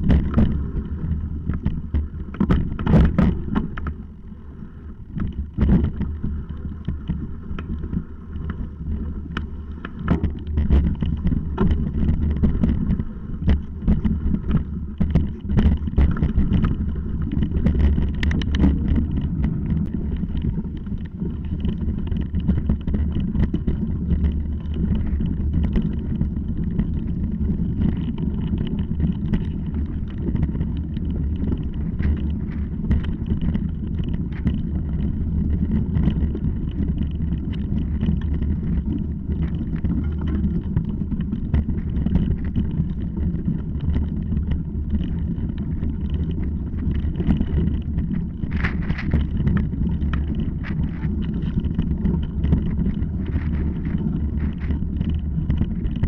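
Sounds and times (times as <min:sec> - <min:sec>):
wind and ride vibration rumble: 0:00.0 - 0:56.0.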